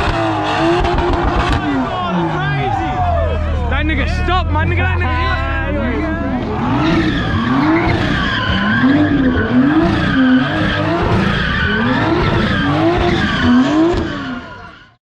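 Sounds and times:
car engine revving: 0.0s - 15.0s
tyres screeching: 5.0s - 15.0s.

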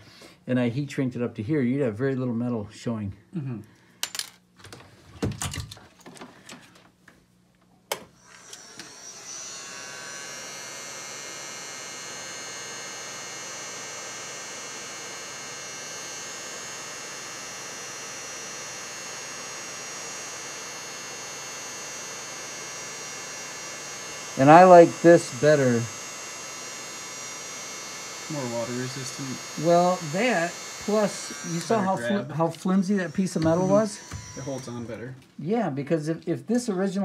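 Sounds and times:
heat gun fan whirring: 7.8s - 35.4s.

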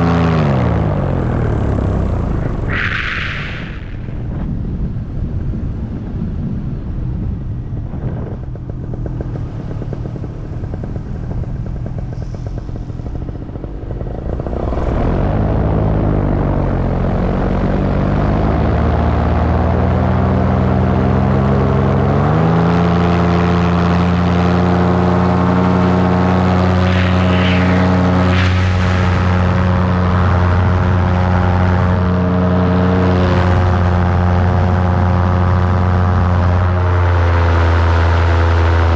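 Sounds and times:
paramotor engine and propeller: 0.0s - 38.9s.

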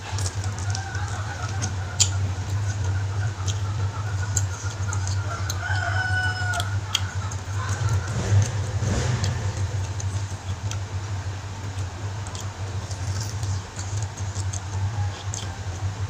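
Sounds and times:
rooster crowing: 0.0s - 3.1s, 5.0s - 9.6s, 14.5s - 16.0s
person eating meat by hand: 0.0s - 10.9s, 11.6s - 15.8s
chickens clucking: 0.0s - 16.0s
steady low hum: 0.0s - 16.0s.

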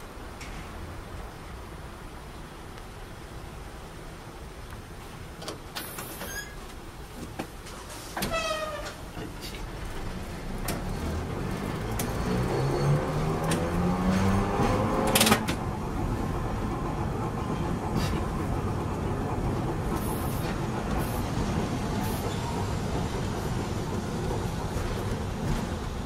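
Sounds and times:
wheels rumbling on rails: 0.0s - 26.0s
tram motor whine rising: 9.7s - 26.0s.

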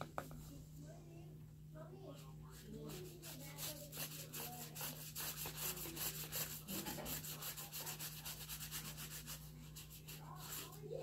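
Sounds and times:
paint rubbing on paper: 2.1s - 11.0s.

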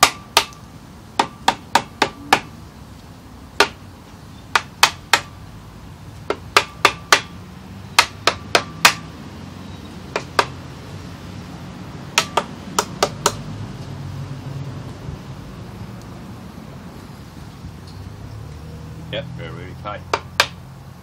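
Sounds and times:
rubber mallet tapping metal: 0.0s - 0.6s, 4.5s - 5.4s, 6.3s - 7.3s, 7.9s - 9.1s, 10.1s - 10.6s, 12.2s - 13.4s, 20.1s - 20.6s.

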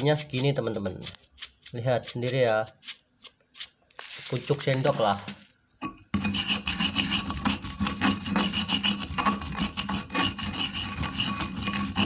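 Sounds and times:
stone pestle grinding spice paste: 0.0s - 3.7s, 6.2s - 12.0s.

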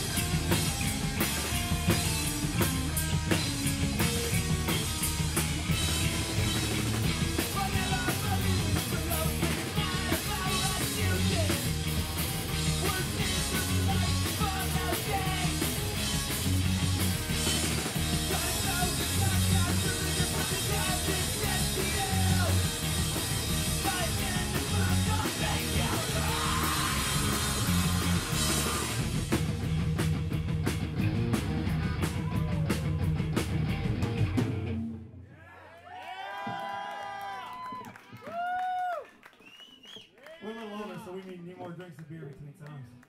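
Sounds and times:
electric guitars: 0.0s - 35.1s
bass guitar: 0.0s - 35.2s
drum kit: 0.0s - 35.2s
lead vocal singing: 7.4s - 11.7s, 12.8s - 15.7s, 18.2s - 22.7s, 23.8s - 29.0s.

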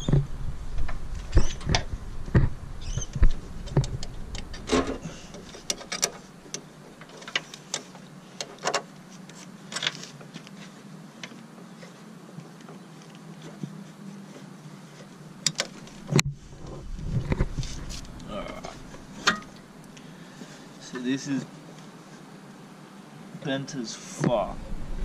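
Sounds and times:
steady low hum: 0.0s - 23.3s, 24.2s - 25.0s
metal line clicking and knocking: 0.8s - 8.8s.

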